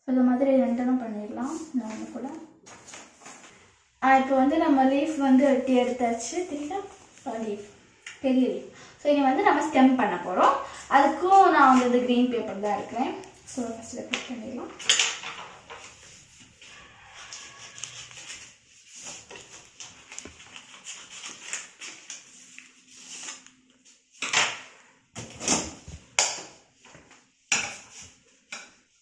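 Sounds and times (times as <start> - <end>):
stiff paper rustling: 15.8 - 23.8.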